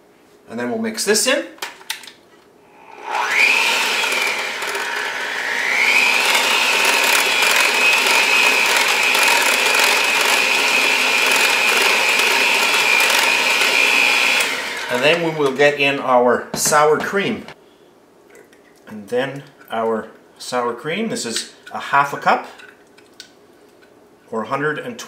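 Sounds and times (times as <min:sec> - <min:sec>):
electric hand mixer whining: 0:02.8 - 0:15.6.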